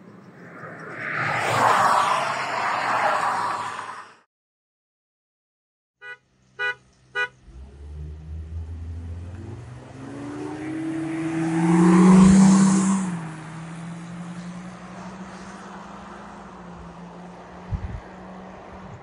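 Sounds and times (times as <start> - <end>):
car horn beeps: 6.0 - 7.4
car engines accelerating hard: 7.4 - 19.0
tyre and wind noise: 17.6 - 19.0.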